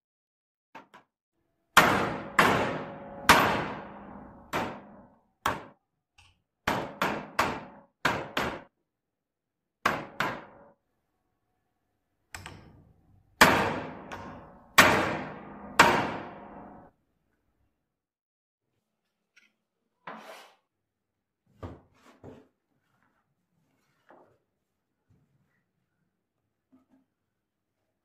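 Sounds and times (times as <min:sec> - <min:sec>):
hammer striking metal punch: 0:01.8 - 0:05.7, 0:13.4 - 0:16.9.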